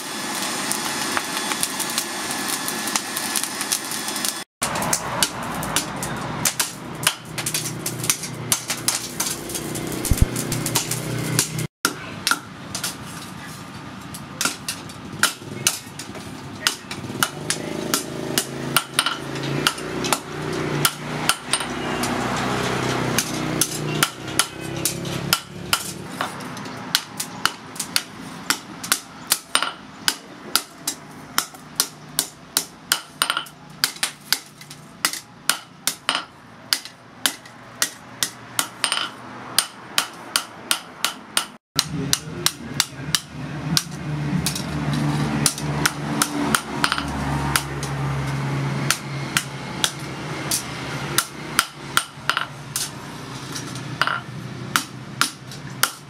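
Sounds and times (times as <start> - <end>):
hammer blows on hot steel: 14.4 - 34.4.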